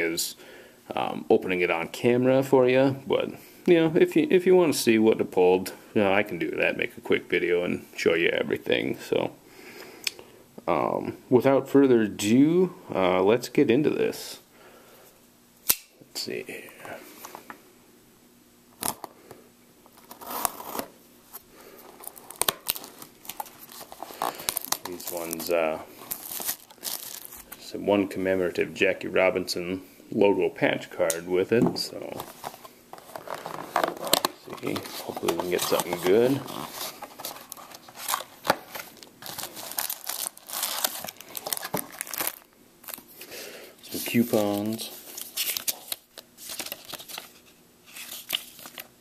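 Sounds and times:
sharp snap: 0:15.6 - 0:16.0
plastic wrap crinkling: 0:19.9 - 0:27.7, 0:32.1 - 0:43.2
rustle of packaging: 0:21.8 - 0:27.6, 0:32.2 - 0:43.2.

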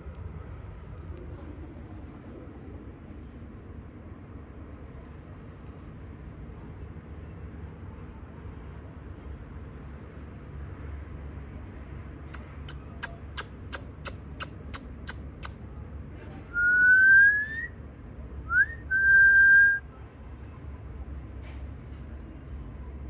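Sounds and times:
person whistling: 0:16.6 - 0:17.7, 0:18.5 - 0:19.8.

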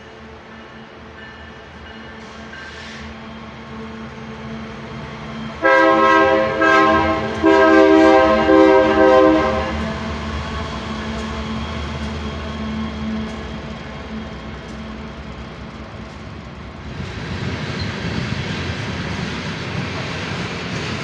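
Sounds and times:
diesel locomotives rumbling: 0:00.0 - 0:21.0
locomotive air horn blasts: 0:05.6 - 0:09.8.

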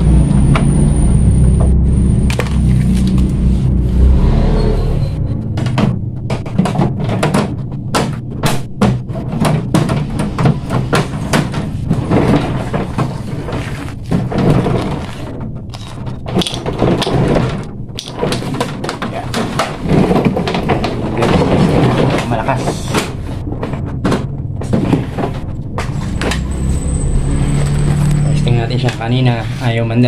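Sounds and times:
steady low hum: 0:00.0 - 0:30.0
plastic clattering and clicking: 0:05.5 - 0:26.5.

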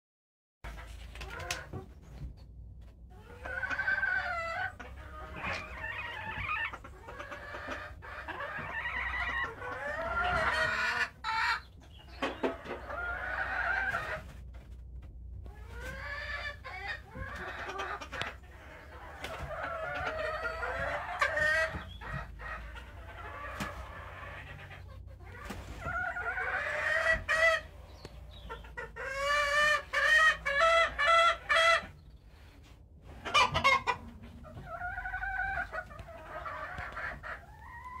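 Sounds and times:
chickens clucking: 0:00.7 - 0:38.0
roosters crowing: 0:03.4 - 0:11.6, 0:18.5 - 0:24.8.

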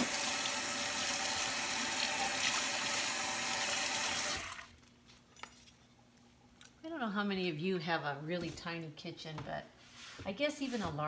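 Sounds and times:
faucet running into sink: 0:00.0 - 0:04.7.

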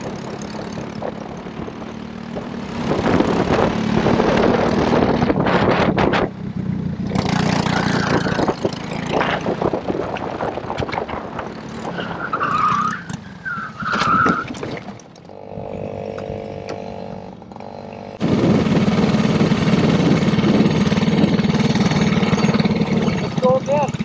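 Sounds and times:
go-kart engine running: 0:00.0 - 0:24.0
tyre squeals: 0:11.8 - 0:15.0.

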